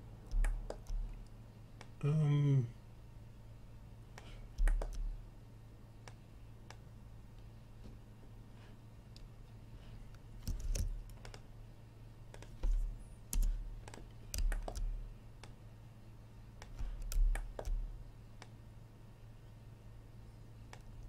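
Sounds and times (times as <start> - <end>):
low electrical hum: 0.0 - 21.0
keyboard typing: 0.2 - 1.3, 4.2 - 5.2, 10.4 - 11.5, 12.3 - 15.6, 16.6 - 18.5
mouse clicks: 0.3 - 2.0, 4.2 - 5.1, 6.0 - 6.8, 10.1 - 11.5, 12.3 - 15.6, 16.6 - 17.8, 18.4 - 18.6.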